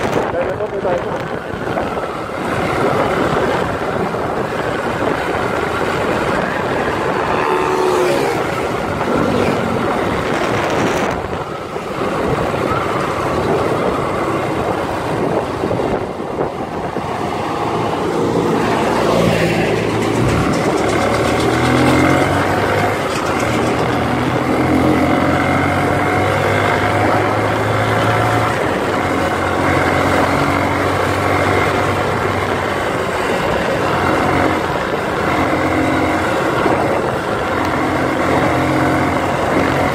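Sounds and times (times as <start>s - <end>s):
wind and road noise: 0.0s - 39.9s
motorcycle engine running: 17.7s - 39.9s.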